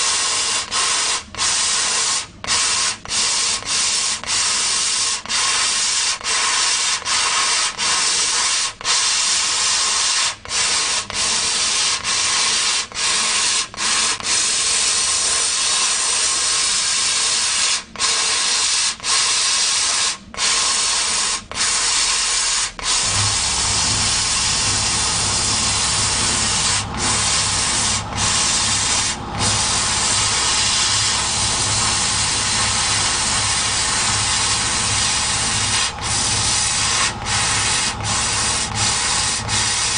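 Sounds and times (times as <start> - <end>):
laser cutter hissing: 0.0 - 39.9
low hum: 23.0 - 38.1.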